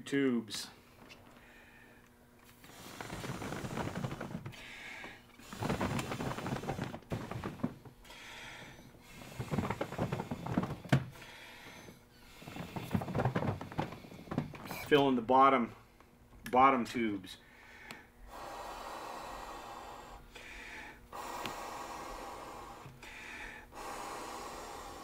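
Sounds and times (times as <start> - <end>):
blowing into inflation hose: 2.6 - 11.3.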